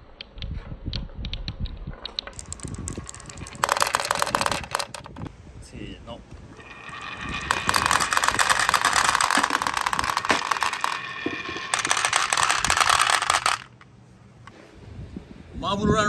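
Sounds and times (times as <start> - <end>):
marbles rattling down tracks: 2.4 - 5.3, 6.4 - 13.8.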